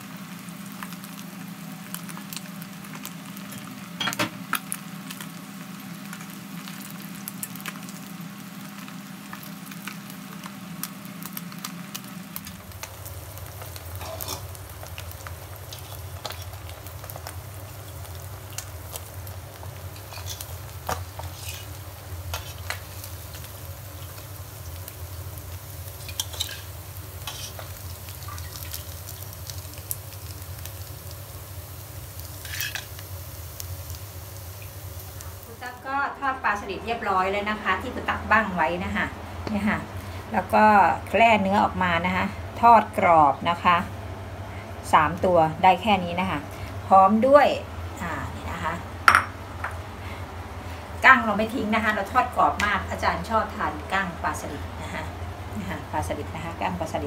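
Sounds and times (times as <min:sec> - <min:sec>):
fish sizzling in hot oil: 0:00.0 - 0:36.6.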